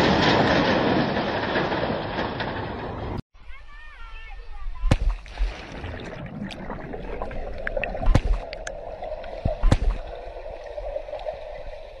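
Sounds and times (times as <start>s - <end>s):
underwater bubbles gurgling: 5.3s - 12.0s.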